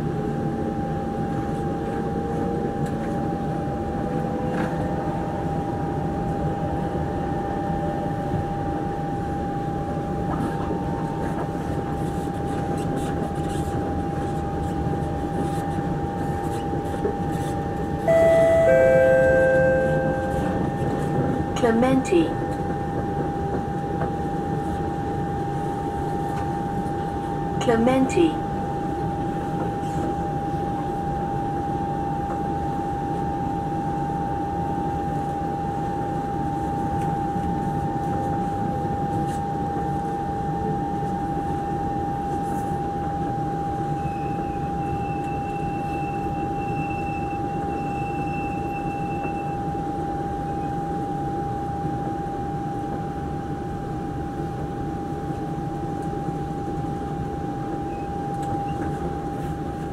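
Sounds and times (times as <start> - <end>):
train carriage rumble: 0.0 - 59.9
faint higher tone: 18.0 - 21.3
high-pitched hum: 18.0 - 24.0.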